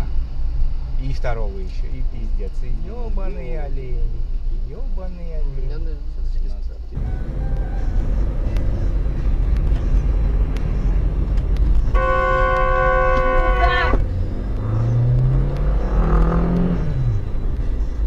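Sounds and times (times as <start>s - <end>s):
road and engine rumble: 0.0s - 18.0s
car horn held: 11.9s - 14.0s.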